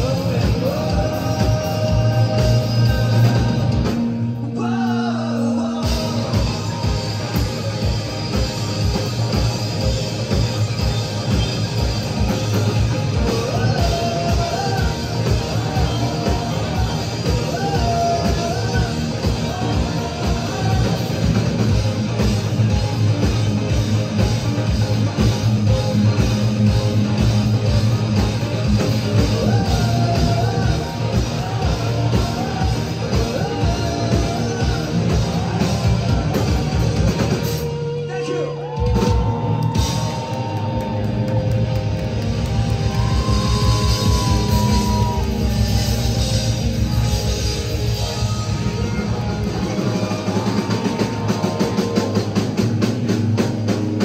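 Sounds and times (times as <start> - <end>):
live rock band playing: 0.0 - 54.0
steady kick drum beat: 38.9 - 54.0.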